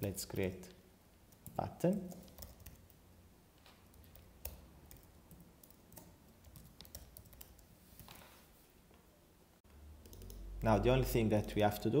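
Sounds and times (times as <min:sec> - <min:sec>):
faint keyboard typing: 0:01.3 - 0:03.0, 0:03.6 - 0:09.0, 0:09.7 - 0:11.8.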